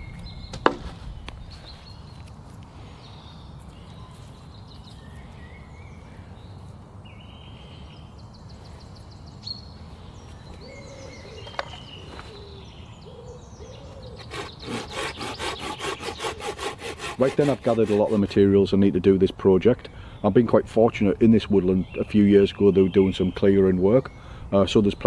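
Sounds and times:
small birds chirping: 0:00.0 - 0:16.5, 0:17.2 - 0:25.0
hand saw cutting wood: 0:14.2 - 0:18.6.

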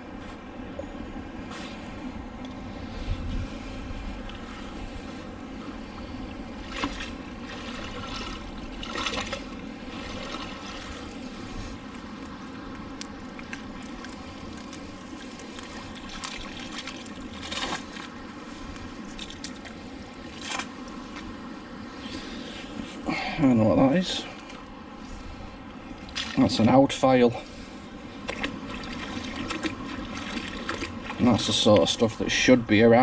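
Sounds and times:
water trickling and sloshing: 0:05.8 - 0:21.3, 0:24.1 - 0:26.8, 0:28.1 - 0:32.2
short water splashes: 0:06.6 - 0:18.2, 0:19.0 - 0:20.8, 0:25.9 - 0:26.7, 0:28.2 - 0:32.1.

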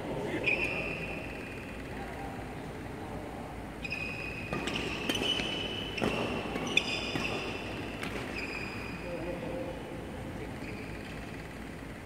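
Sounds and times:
shoes squeaking on court floor: 0:00.4 - 0:01.8, 0:03.8 - 0:09.2, 0:10.5 - 0:11.8
racket striking shuttlecock: 0:04.5 - 0:08.6.

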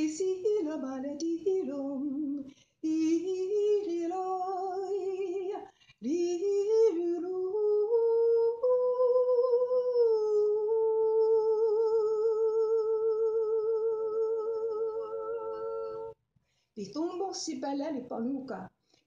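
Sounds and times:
woman singing wordless notes: 0:00.0 - 0:16.2
singer breathing: 0:02.4 - 0:02.8, 0:05.7 - 0:06.0, 0:16.4 - 0:16.8.

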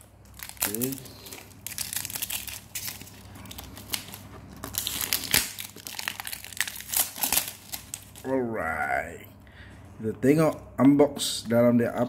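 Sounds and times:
plastic wrapping crinkling: 0:00.0 - 0:08.3.

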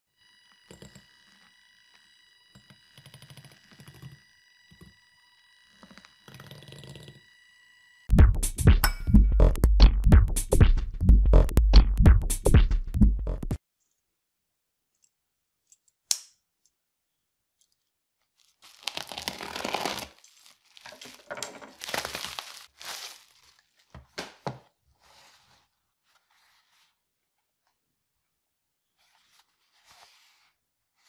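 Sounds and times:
electronic music with drum beat: 0:08.1 - 0:13.6
bubble wrap crinkling: 0:17.7 - 0:24.4
rustling of wrap and cardboard box: 0:18.2 - 0:27.2.

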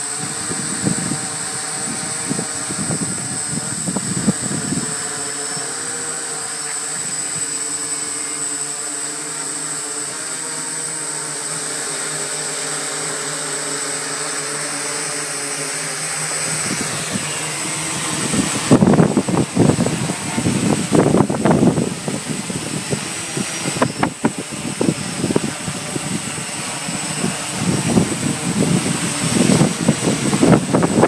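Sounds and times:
drone propellers humming: 0:00.0 - 0:31.0
wind buffeting microphone: 0:00.1 - 0:05.8, 0:16.5 - 0:31.0.

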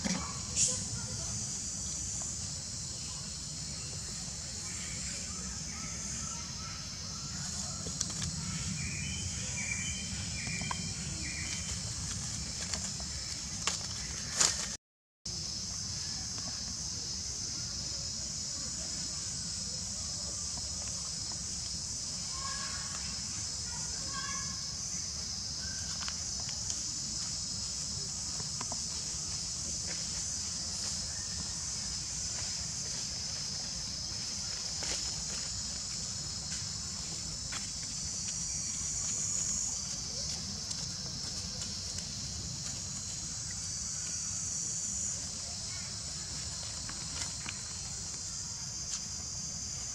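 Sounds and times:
insect hiss: 0:00.0 - 0:49.9
dry leaves clicking: 0:11.4 - 0:14.8.

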